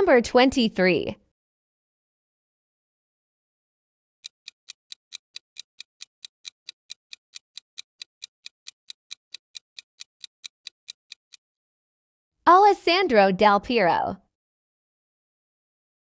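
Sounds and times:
sharp clock ticks: 0:04.2 - 0:11.4.

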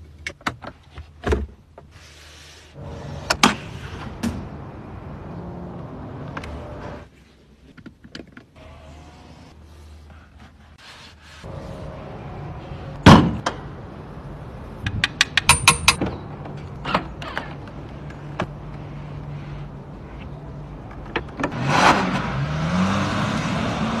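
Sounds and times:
car engine revving: 0:21.5 - 0:24.0.

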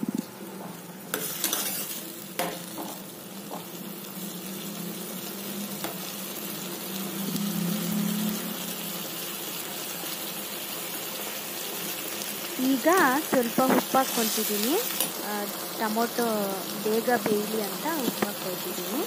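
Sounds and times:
tomatoes sizzling in hot oil: 0:00.0 - 0:19.0
spoon scraping against pan: 0:01.1 - 0:02.6, 0:13.3 - 0:15.2.

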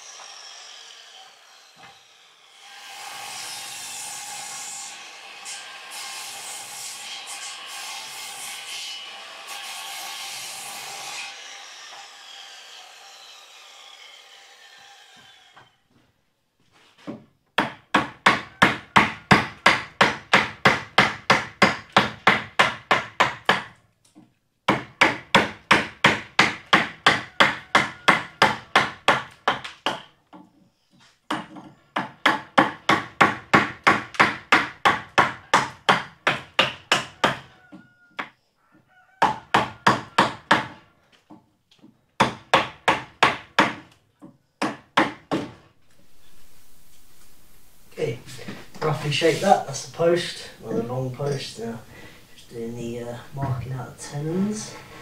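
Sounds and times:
mallet striking chisel into wood: 0:42.2 - 0:45.6.

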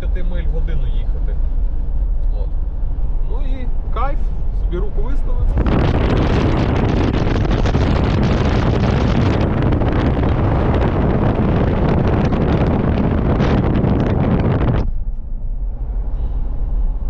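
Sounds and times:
low rumble: 0:00.0 - 0:17.0
wind buffeting microphone: 0:05.4 - 0:17.0.

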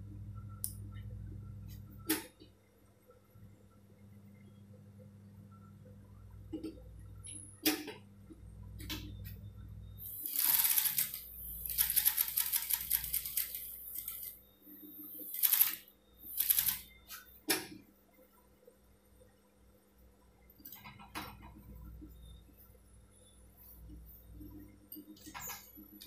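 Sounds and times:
low hum: 0:00.0 - 0:02.0
sewing machine stitching: 0:10.2 - 0:14.3.

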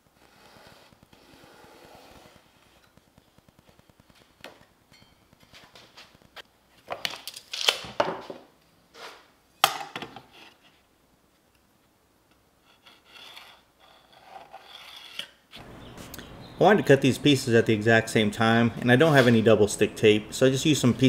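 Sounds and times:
pencil marking on plywood: 0:00.2 - 0:02.8
steel square sliding on board: 0:00.2 - 0:03.0, 0:12.6 - 0:15.4.

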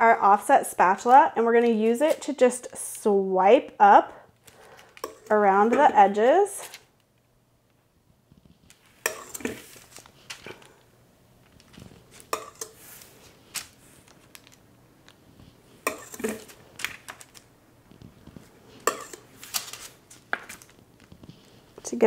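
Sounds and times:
metal spatula scraping sheet pan: 0:09.0 - 0:09.8, 0:15.8 - 0:16.5.

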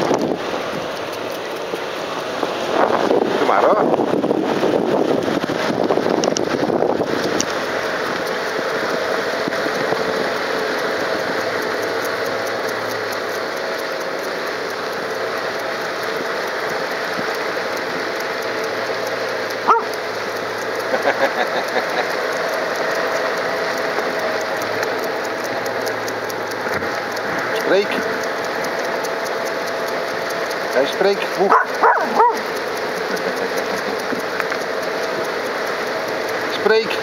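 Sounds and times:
steady rushing noise: 0:00.0 - 0:37.0
dog yipping: 0:19.7 - 0:19.9, 0:31.5 - 0:32.4.

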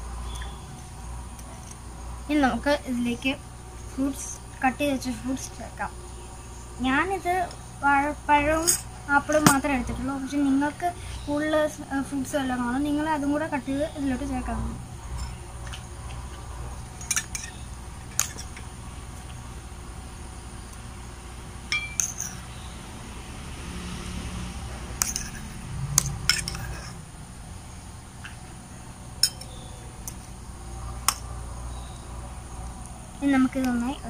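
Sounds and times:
spoons clinking on metal bowls: 0:21.7 - 0:22.4, 0:29.2 - 0:30.2.

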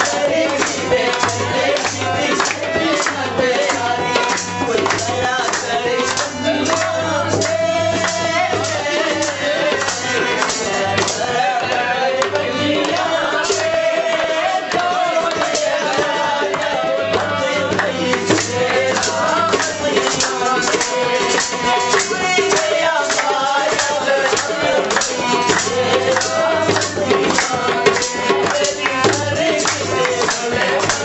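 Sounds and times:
rhythmic percussion: 0:00.0 - 0:31.0.

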